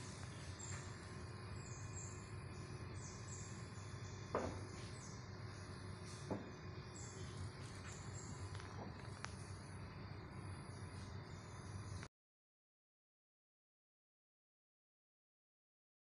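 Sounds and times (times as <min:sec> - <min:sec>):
birds chirping: 0:00.0 - 0:12.1
insects: 0:00.0 - 0:12.1.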